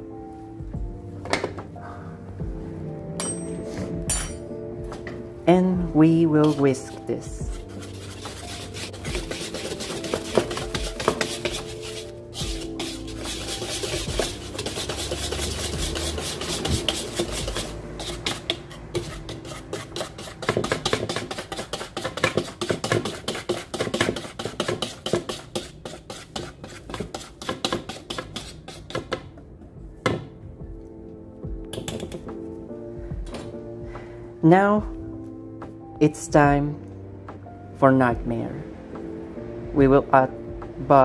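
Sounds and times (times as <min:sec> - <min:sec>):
whisk rasping through flour: 0:06.4 - 0:29.1
whisk knock on bowl: 0:20.0 - 0:25.7.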